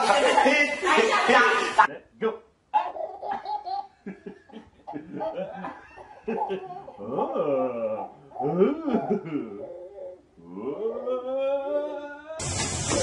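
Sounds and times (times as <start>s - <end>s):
baby making playful vocal sounds: 2.8s - 3.8s, 6.6s - 12.4s
man making playful vocal sounds: 5.0s - 12.4s.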